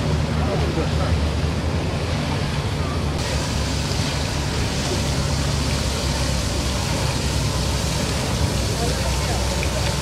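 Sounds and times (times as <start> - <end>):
constant hum: 0.0 - 10.0
faint voices: 8.1 - 10.0.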